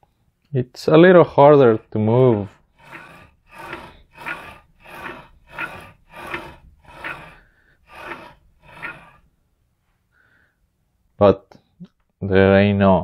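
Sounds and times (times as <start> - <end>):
linear rail blocks rolling: 1.7 - 9.3.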